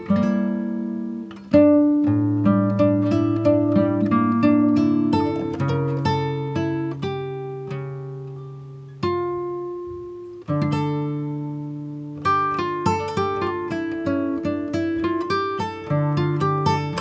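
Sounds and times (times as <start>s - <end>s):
plucked acoustic guitar: 0.0s - 17.0s.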